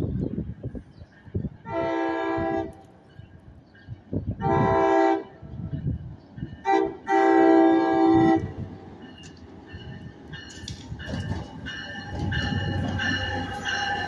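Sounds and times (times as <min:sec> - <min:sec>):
train horn blasts: 0:01.6 - 0:02.8, 0:04.4 - 0:05.4, 0:06.6 - 0:08.6.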